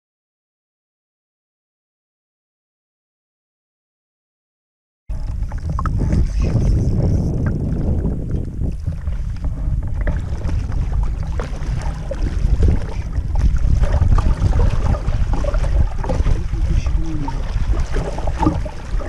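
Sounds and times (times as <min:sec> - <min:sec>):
water lapping against boat hull: 0:05.1 - 0:19.0
wind buffeting microphone: 0:05.1 - 0:19.0
small water splashes: 0:10.0 - 0:19.0.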